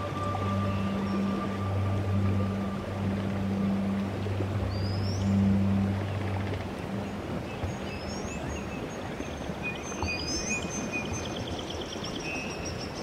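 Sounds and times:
steady rushing noise: 0.0 - 8.9
birds chirping: 0.0 - 13.0.

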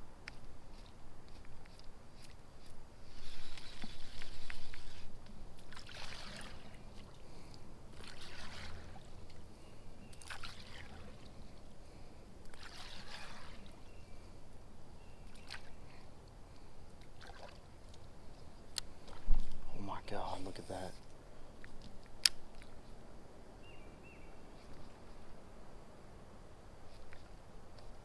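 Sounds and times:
lure splashing on water: 5.6 - 7.2, 7.9 - 9.4, 10.1 - 11.3, 12.5 - 13.8, 17.0 - 18.1.

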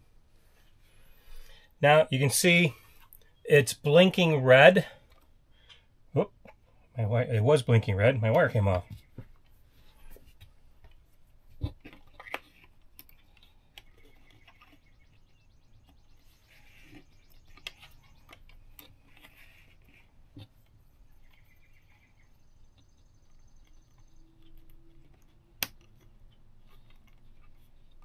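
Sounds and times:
small clicks and knocks: 10.1 - 15.1.

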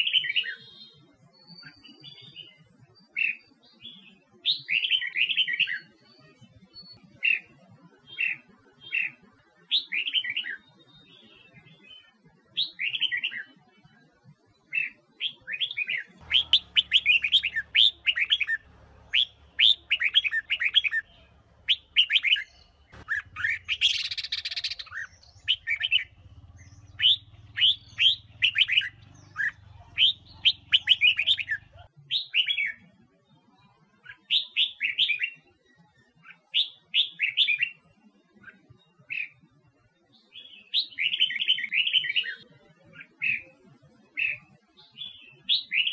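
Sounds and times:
bird singing warbled phrases: 0.0 - 45.9
faint low hum: 16.2 - 31.9.

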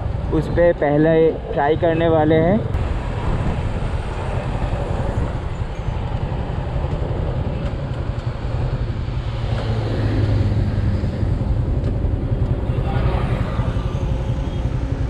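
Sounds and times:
road noise: 0.0 - 15.0
wind noise: 0.0 - 15.0
motorcycle engine running: 7.4 - 15.0.

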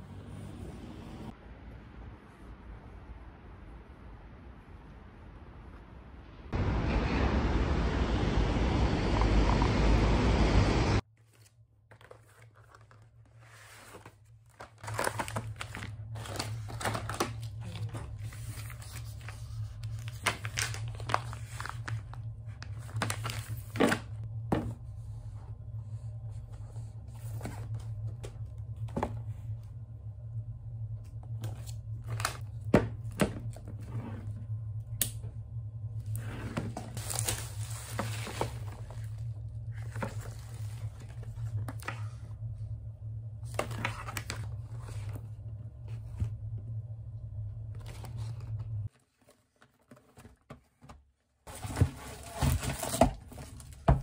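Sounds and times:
low steady hum: 0.0 - 49.3
plastic and cardboard crinkling: 11.2 - 24.2, 36.7 - 42.2, 47.8 - 54.0.

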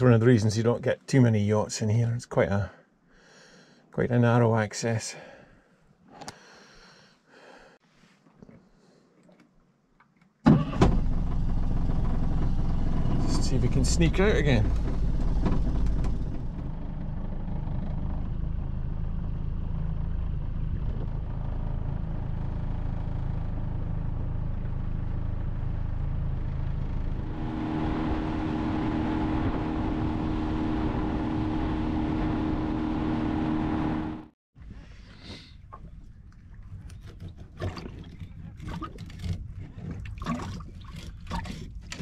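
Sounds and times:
outboard motor running: 10.8 - 18.0, 27.1 - 34.3, 35.8 - 42.0.

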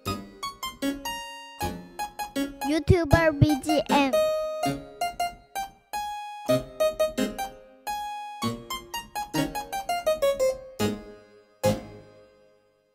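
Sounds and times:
keyboard tune: 2.6 - 5.4.

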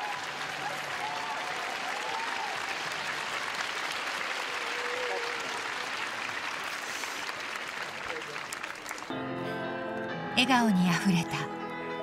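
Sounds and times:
crowd applauding: 0.0 - 9.2.

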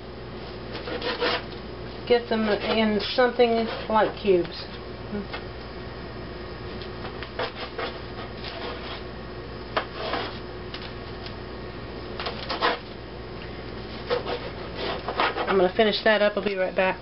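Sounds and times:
knife sawing through bread: 0.7 - 1.5, 2.4 - 4.1, 7.4 - 9.1, 9.8 - 10.4, 12.4 - 12.9, 13.9 - 15.6
knife scraping parchment paper: 0.7 - 1.6, 2.2 - 4.2, 7.3 - 9.1, 9.8 - 10.4, 12.2 - 12.9, 13.9 - 15.8.

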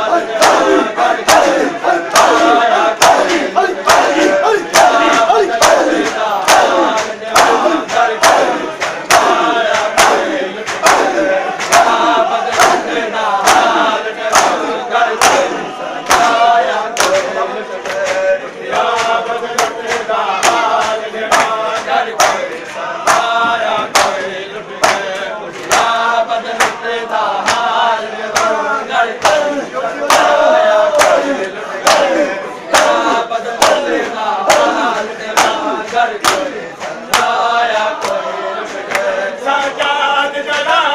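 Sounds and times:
men chanting a lament: 0.0 - 40.9
hands slapping chests: 0.3 - 16.4, 17.0 - 24.2, 24.8 - 26.0, 26.6 - 26.8, 27.4 - 27.7, 30.1 - 37.4.

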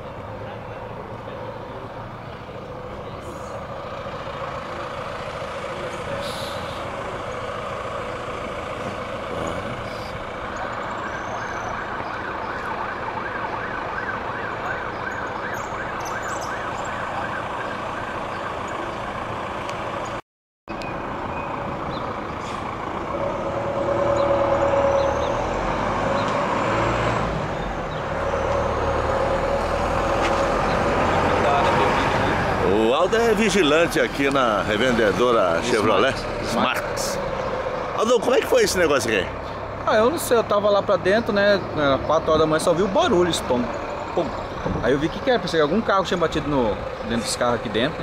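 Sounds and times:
vehicles passing on road: 0.0 - 48.0
nearby engine running: 0.4 - 15.2.

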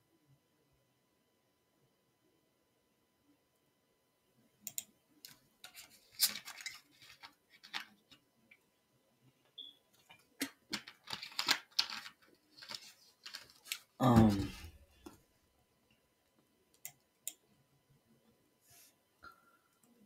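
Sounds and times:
keyboard and mouse clicking: 4.6 - 4.9.

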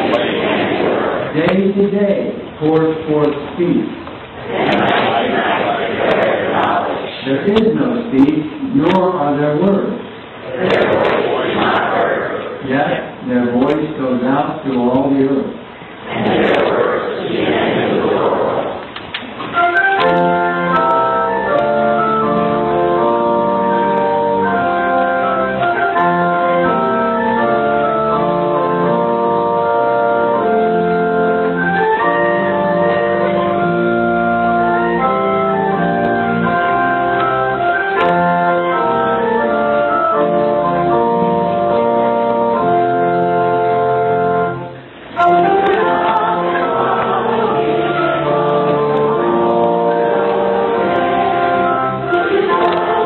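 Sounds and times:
church organ playing slow chords: 19.5 - 53.0.

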